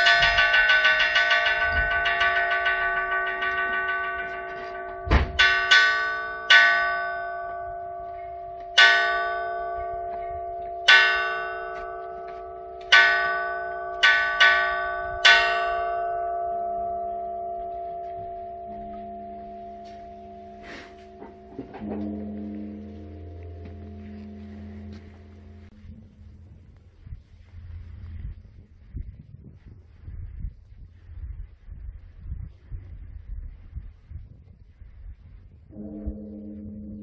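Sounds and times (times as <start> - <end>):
metal gong ringing: 0.0 - 26.3, 35.7 - 37.0.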